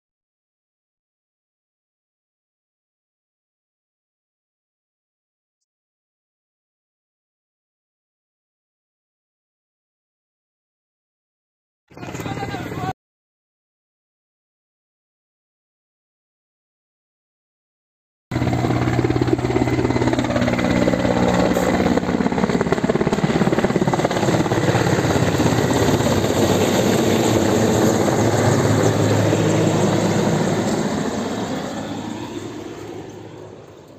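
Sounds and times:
helicopter flying low overhead: 0:11.9 - 0:13.0, 0:18.3 - 0:33.9.

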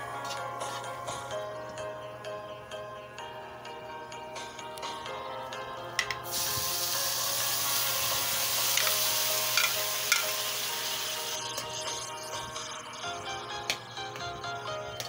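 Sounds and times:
chicken sizzling in hot oil: 0:06.2 - 0:12.9
bowl and spatula knocking pan: 0:09.6 - 0:10.4.

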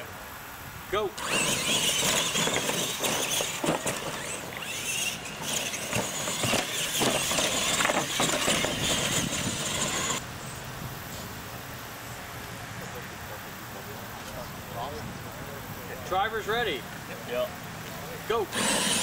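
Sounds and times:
tires churning dirt: 0:00.9 - 0:11.6, 0:12.3 - 0:19.0
electric motors whining: 0:01.2 - 0:10.2, 0:17.1 - 0:19.0
trucks knocking on ramps: 0:01.2 - 0:10.2.

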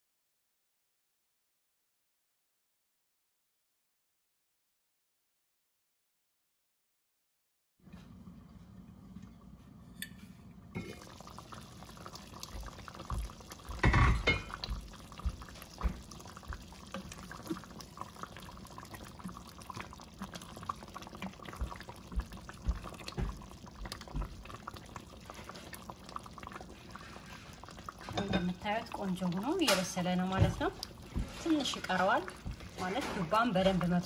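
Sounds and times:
thick stew sloshing: 0:10.8 - 0:34.0.

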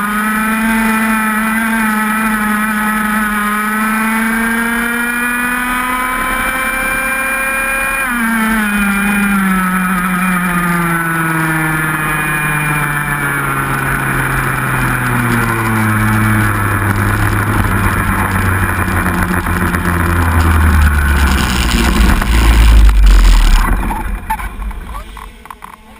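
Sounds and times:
kart engine slowing down: 0:00.0 - 0:25.9.

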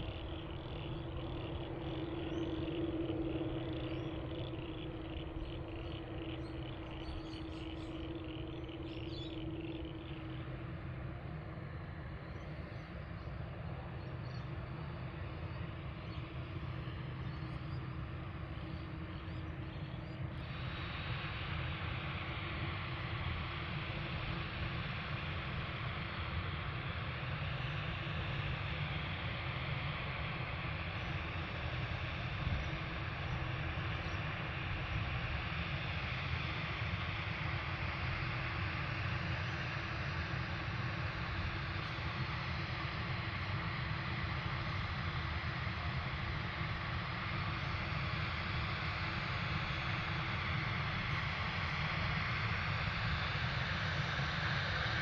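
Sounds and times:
jet engines low rumble: 0:00.0 - 0:55.0
jet engines rushing hiss: 0:34.5 - 0:55.0.

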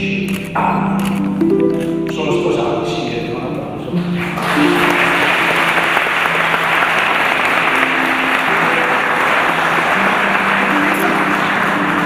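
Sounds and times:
instrumental music with held notes: 0:00.4 - 0:12.0
crowd applauding: 0:04.1 - 0:12.0.

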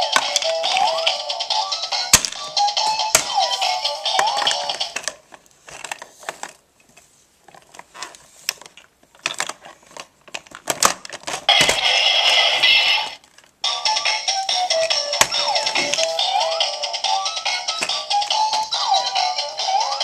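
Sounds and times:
plastic blocks clattering: 0:00.0 - 0:01.2, 0:08.6 - 0:11.8, 0:14.8 - 0:16.2
plastic toy clicking and rattling: 0:00.0 - 0:01.3, 0:04.1 - 0:06.6
toy tune: 0:00.0 - 0:05.0, 0:11.5 - 0:20.0.

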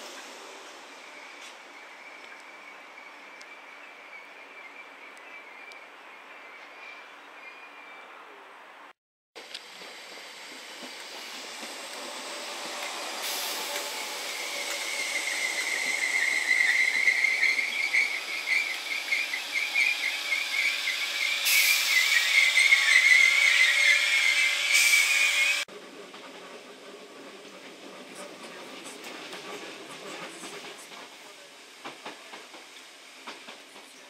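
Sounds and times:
train rumble: 0:09.4 - 0:34.0
train brakes squealing: 0:09.9 - 0:25.6.

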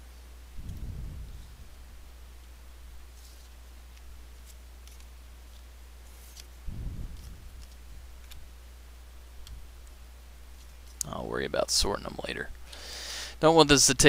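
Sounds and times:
steady low hum: 0:00.0 - 0:14.0
cards clicking and swishing: 0:03.1 - 0:08.5.

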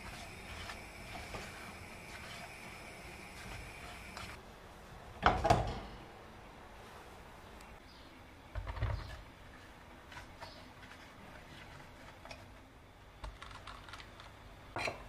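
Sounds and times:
spatula scraping in pan: 0:00.0 - 0:04.4, 0:09.5 - 0:12.5.

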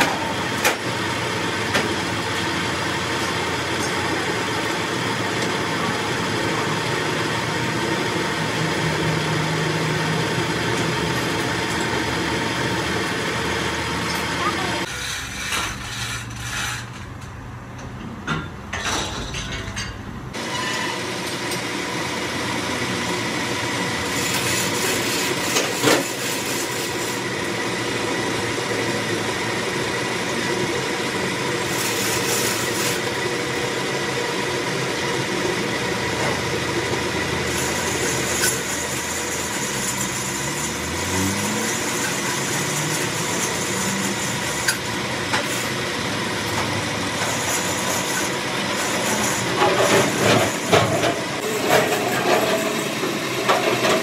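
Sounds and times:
metal lathe running: 0:00.0 - 0:16.6, 0:20.3 - 0:54.0.

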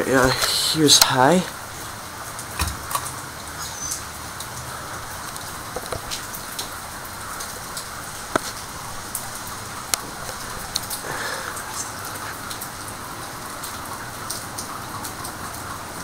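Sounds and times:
heavy rain hissing: 0:00.0 - 0:16.0
drips and taps: 0:05.3 - 0:06.7, 0:07.4 - 0:08.6.

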